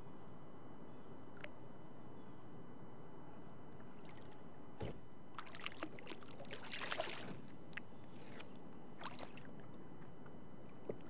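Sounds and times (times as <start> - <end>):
fish splashing in water: 5.4 - 7.4.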